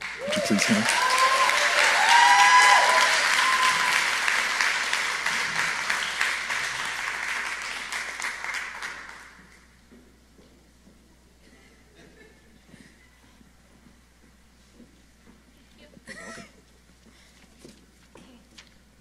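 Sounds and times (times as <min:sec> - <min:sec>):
high-pitched cheers: 0:00.0 - 0:04.4
audience applauding: 0:00.0 - 0:09.7.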